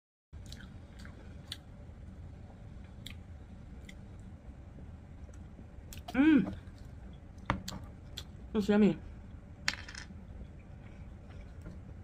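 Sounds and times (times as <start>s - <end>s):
low hum: 0.4s - 12.0s.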